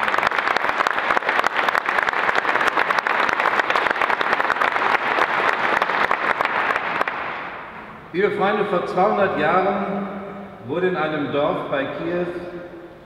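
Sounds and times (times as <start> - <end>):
crowd clapping: 0.0 - 7.8.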